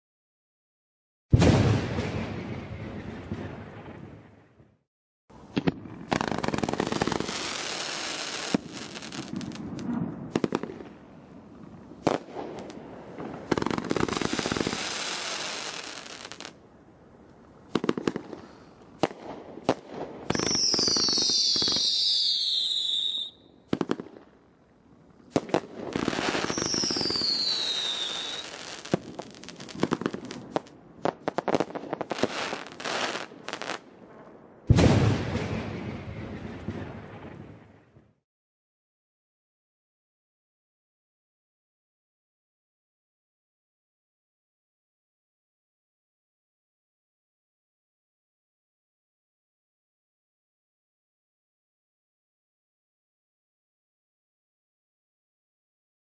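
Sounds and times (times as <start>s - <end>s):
firework shots and bursts: 1.3s - 4.0s, 5.5s - 11.0s, 12.0s - 16.6s, 17.7s - 24.3s, 25.3s - 33.8s, 34.7s - 37.4s
firework crackling: 5.5s - 11.0s, 12.0s - 16.6s, 25.3s - 33.8s
firework whistles falling in pitch: 20.3s - 23.5s, 26.1s - 29.0s.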